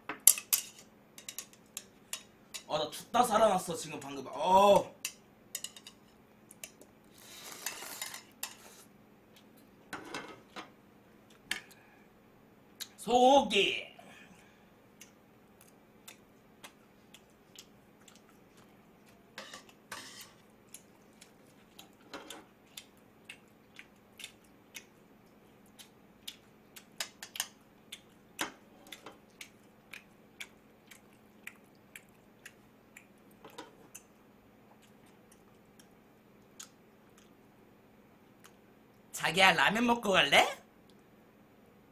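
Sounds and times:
man chewing with wet clicks: 8.8 - 9.8, 12.7 - 13.0, 14.8 - 39.1, 40.8 - 41.1
mouth smacking: 27.8 - 34.1, 34.7 - 37.4.

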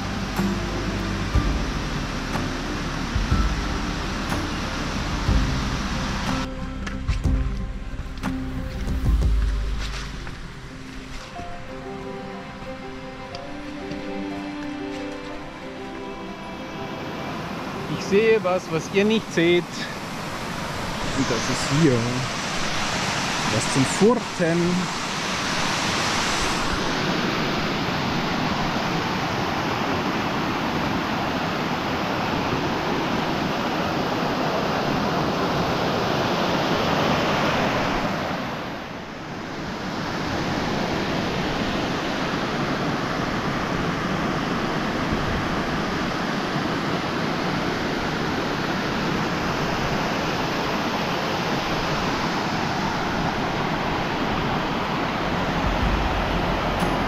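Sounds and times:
mountain stream rushing: 0.0 - 57.0.

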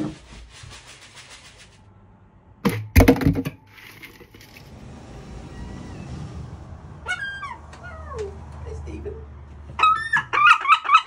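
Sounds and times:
clatter of hard objects: 2.7 - 4.7.

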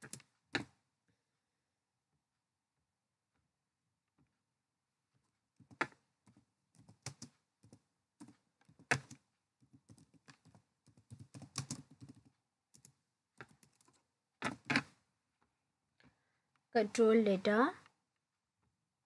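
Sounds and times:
typing on keyboard: 5.6 - 14.8.

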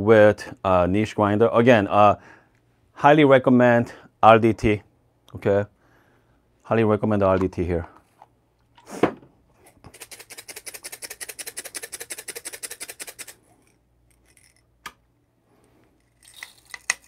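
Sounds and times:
coffee beans rattling in cup: 9.7 - 14.6, 16.0 - 17.0.

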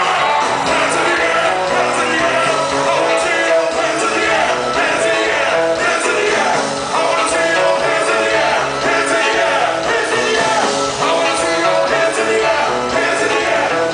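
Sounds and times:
loud live music with singing: 0.0 - 13.9.

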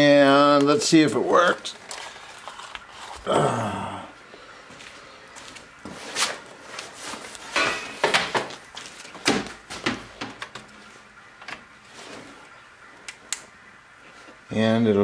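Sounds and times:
knocks and rustles of handling: 4.8 - 12.6.

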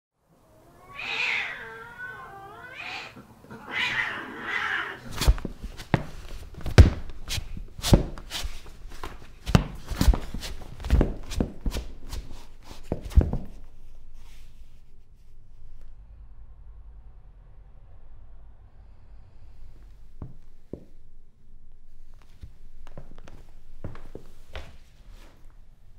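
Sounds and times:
cat yowling: 0.4 - 5.1.

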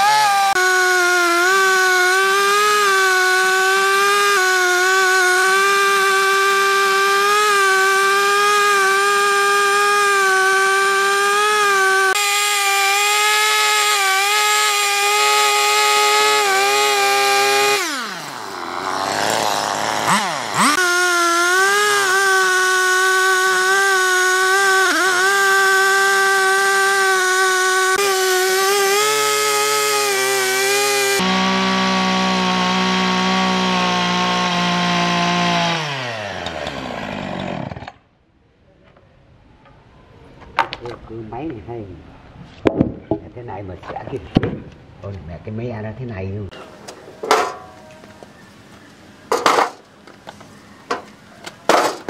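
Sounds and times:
chainsaw running at high revs: 0.0 - 38.0.

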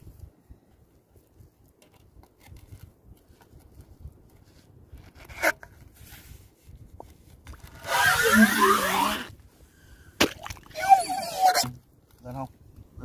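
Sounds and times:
pipe scraping in wet sand: 4.4 - 9.3.

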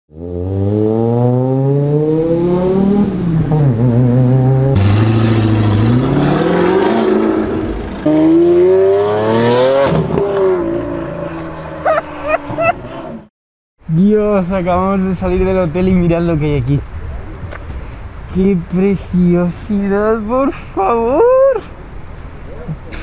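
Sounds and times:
car engines revving: 0.1 - 13.3.

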